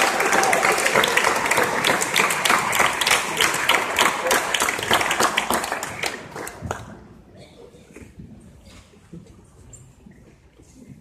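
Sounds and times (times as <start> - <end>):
audience applause: 0.0 - 6.9.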